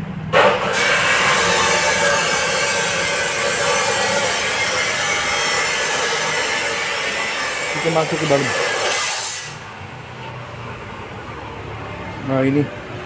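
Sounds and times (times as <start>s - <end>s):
power tool grinding hiss: 0.4s - 9.7s.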